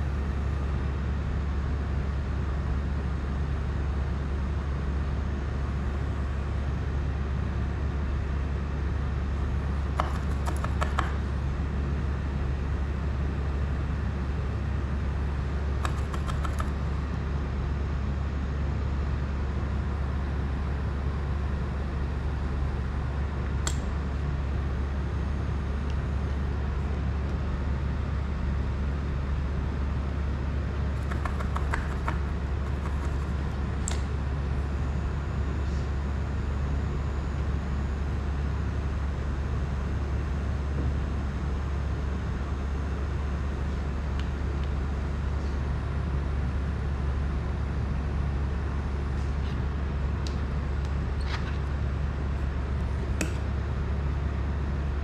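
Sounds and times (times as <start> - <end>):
steady low hum: 0.0 - 55.0
hand tools clicking and tapping: 10.0 - 11.2, 15.8 - 16.7, 31.0 - 34.0.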